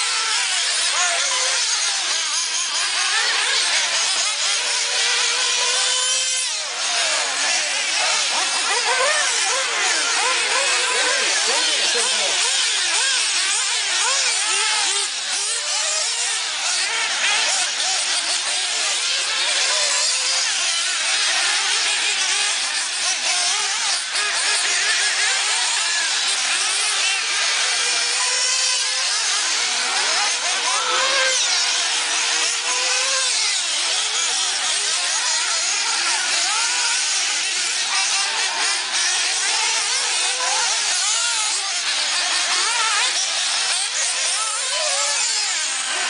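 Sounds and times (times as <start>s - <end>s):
rc car engines revving: 0.0s - 46.0s.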